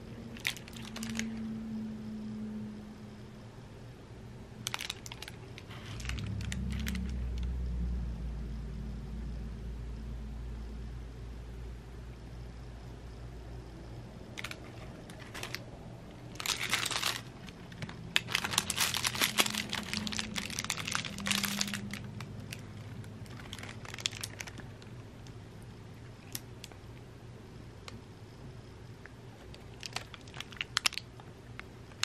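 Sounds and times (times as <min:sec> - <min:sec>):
tinsel cat toy crinkling: 0:00.4 - 0:01.4, 0:04.6 - 0:07.2, 0:14.4 - 0:15.6, 0:16.3 - 0:24.7, 0:29.7 - 0:31.0.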